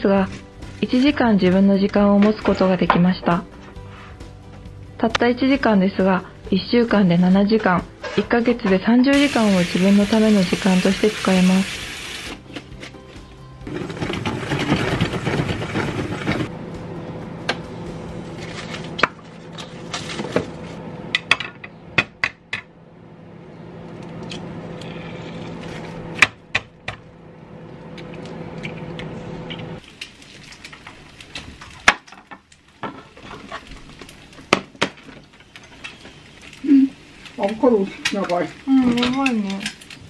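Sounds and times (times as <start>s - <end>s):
steady hum: 13.7s - 29.8s.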